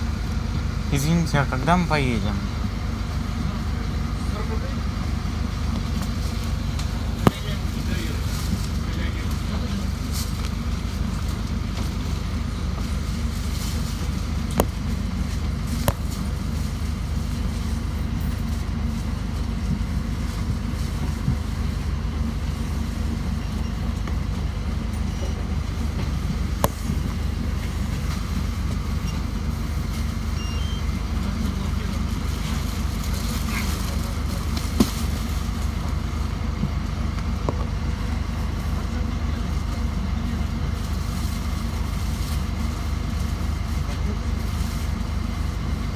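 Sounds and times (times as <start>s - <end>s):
bus engine idling: 0.0s - 45.9s
faint voices: 31.0s - 35.2s.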